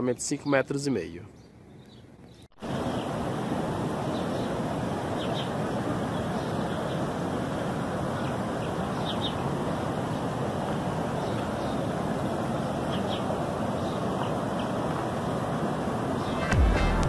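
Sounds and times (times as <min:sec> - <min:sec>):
rushing river ambience: 0:02.6 - 0:17.0.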